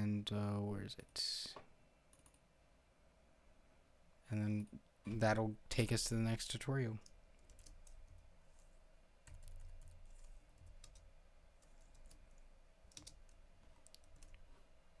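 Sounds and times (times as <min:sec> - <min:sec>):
low steady hum: 0:00.0 - 0:15.0
computer keyboard keystrokes: 0:07.0 - 0:08.2, 0:09.3 - 0:14.4.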